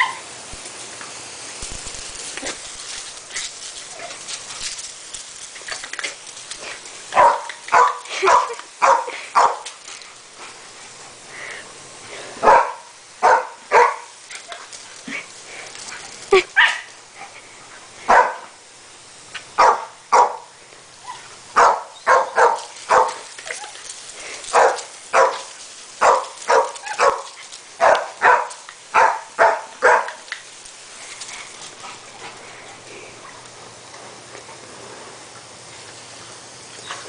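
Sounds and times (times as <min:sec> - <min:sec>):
garden hose spraying: 0:00.0 - 0:37.0
dog barking: 0:07.2 - 0:09.6, 0:12.4 - 0:14.1, 0:18.1 - 0:18.4, 0:19.6 - 0:20.5, 0:21.6 - 0:23.2, 0:24.5 - 0:30.2.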